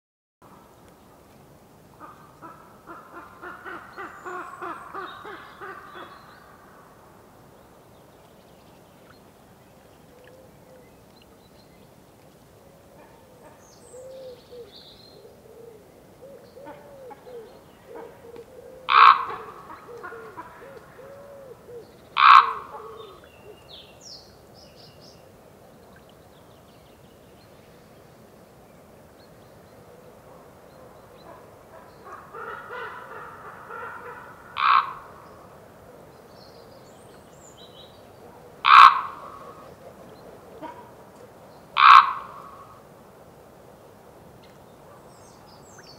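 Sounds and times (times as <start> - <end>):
raven calling: 2.0 - 7.0, 13.0 - 23.7, 31.2 - 36.0, 38.5 - 42.9.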